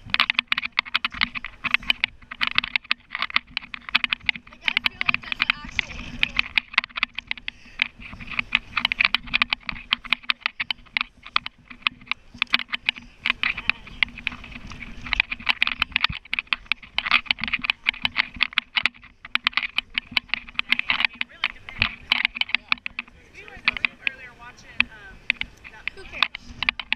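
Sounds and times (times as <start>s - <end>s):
camera housing clicking and rubbing: 0.0s - 26.9s.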